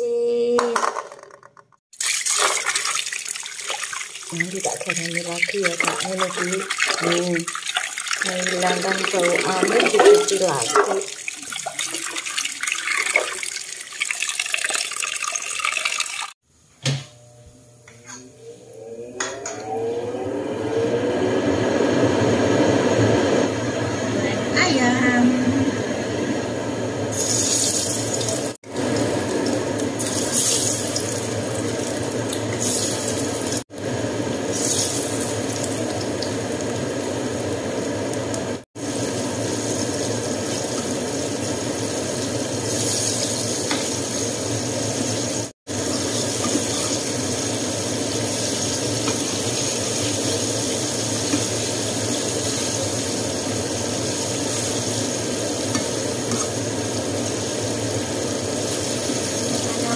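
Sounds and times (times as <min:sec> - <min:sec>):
chicken sizzling in hot oil: 0:01.9 - 0:14.3, 0:27.1 - 0:59.9.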